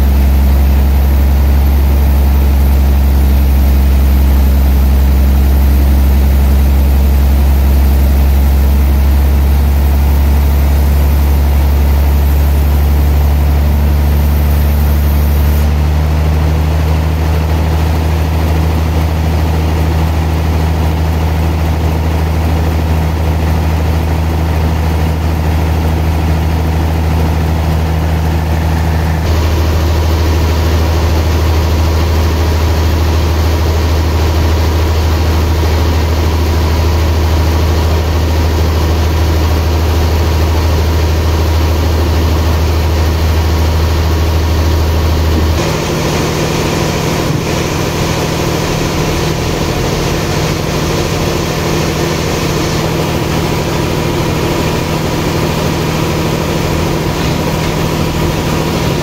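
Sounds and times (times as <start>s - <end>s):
sawmill machinery droning: 0.0s - 59.0s.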